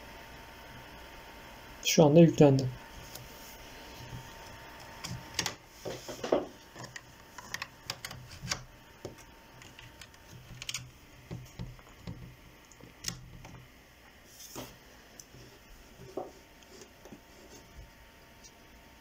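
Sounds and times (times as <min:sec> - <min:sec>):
keyboard and mouse clicks: 0:06.8 - 0:13.6.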